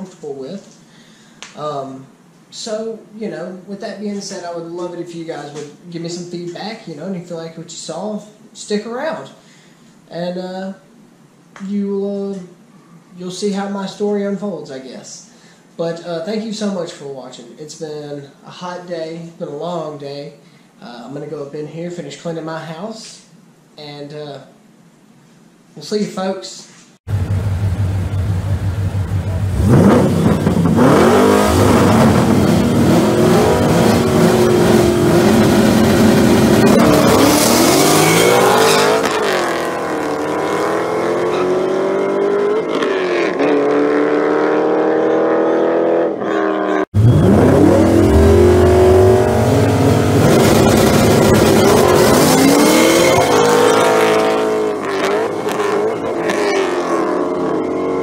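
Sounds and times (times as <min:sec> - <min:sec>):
racing car engines accelerating: 0:27.1 - 0:58.0.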